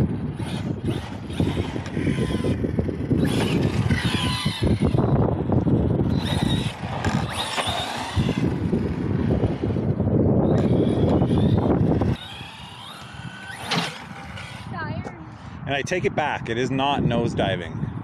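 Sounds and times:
electric motor whining: 0:00.0 - 0:15.1
tyre noise on asphalt: 0:00.4 - 0:14.8.

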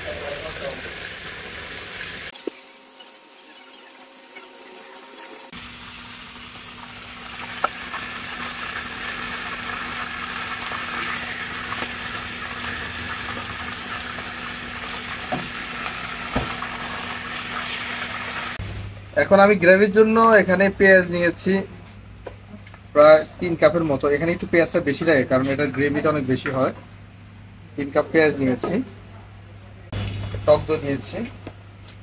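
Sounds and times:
meat sizzling in oil: 0:00.0 - 0:18.6.

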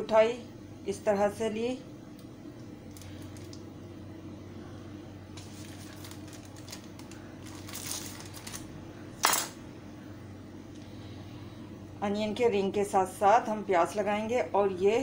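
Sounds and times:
faint low hum: 0:00.0 - 0:15.0
plastic wrapper crinkling: 0:02.8 - 0:03.6, 0:05.4 - 0:08.7.

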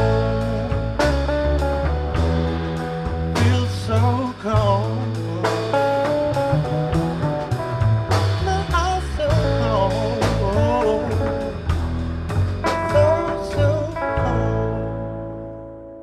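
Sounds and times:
man singing: 0:00.0 - 0:01.7, 0:03.3 - 0:06.7, 0:08.3 - 0:12.0, 0:12.6 - 0:15.3
drums: 0:00.0 - 0:16.0
electric guitar: 0:00.0 - 0:16.0.

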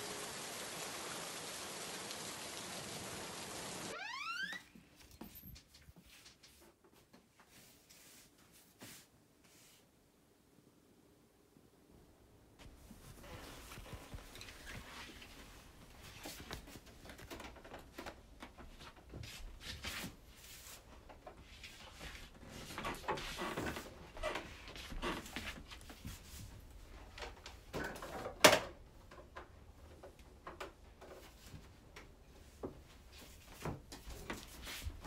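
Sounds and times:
fabric rustling: 0:12.6 - 0:17.2.

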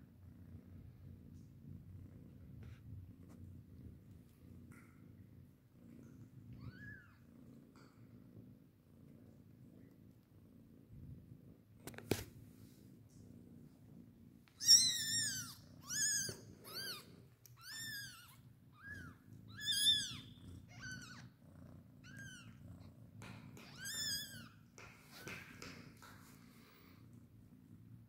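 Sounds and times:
cat purring: 0:00.0 - 0:28.0
kittens mewing: 0:14.6 - 0:21.3, 0:22.0 - 0:22.6, 0:23.2 - 0:26.1.

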